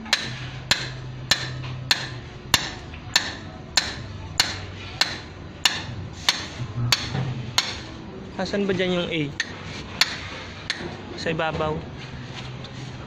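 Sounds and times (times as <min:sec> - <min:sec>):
hammer striking metal rod: 0:00.0 - 0:08.0, 0:09.4 - 0:11.0.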